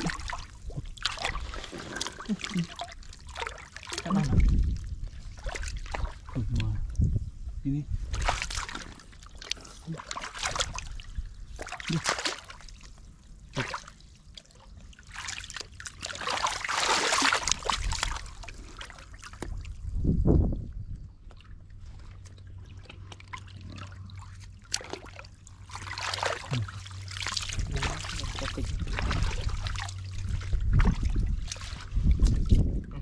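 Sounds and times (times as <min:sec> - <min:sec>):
water sloshing and splashing: 0:00.0 - 0:33.0.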